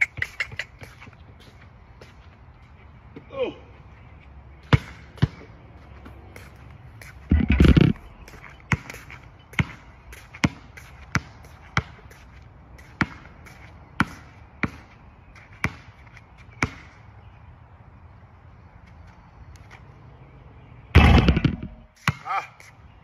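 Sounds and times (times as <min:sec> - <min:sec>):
basketball bouncing on asphalt: 0:04.6 - 0:17.3, 0:20.9 - 0:22.3.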